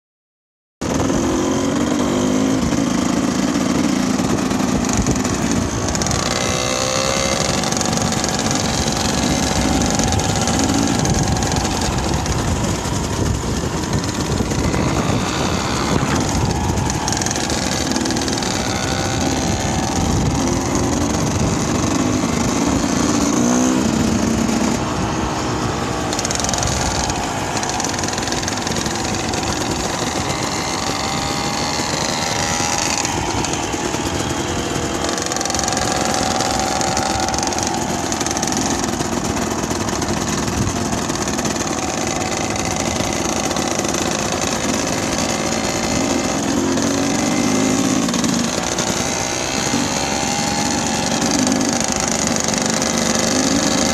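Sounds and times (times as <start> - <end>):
dirt bike engine revving: 0.8 - 53.9.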